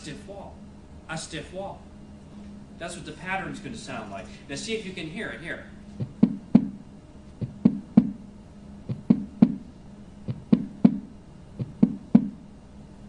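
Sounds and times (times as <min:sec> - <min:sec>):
heartbeat gallop: 0:06.0 - 0:06.8, 0:07.4 - 0:08.2, 0:08.9 - 0:09.6, 0:10.3 - 0:12.4.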